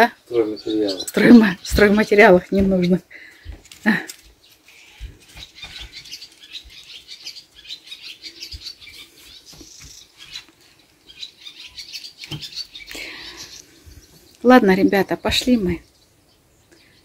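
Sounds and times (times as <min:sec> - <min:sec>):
small birds chirping: 0:00.0 - 0:17.0
soft low thumps: 0:01.3 - 0:03.6.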